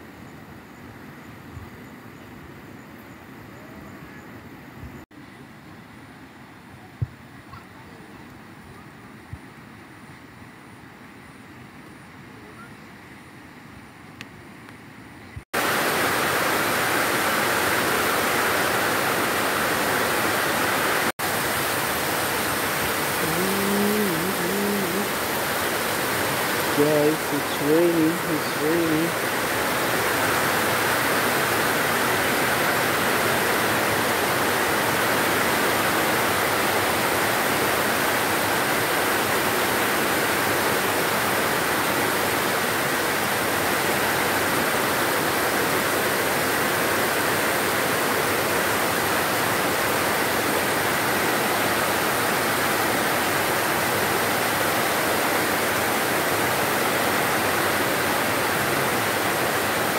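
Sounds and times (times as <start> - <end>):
heavy rain downpour: 15.6 - 59.9.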